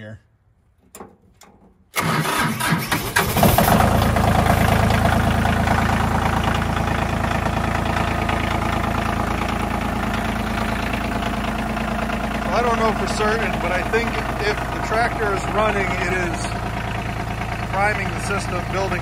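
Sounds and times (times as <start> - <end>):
diesel tractor engine idling: 0.8 - 19.0
starter motor cranking: 1.9 - 19.0.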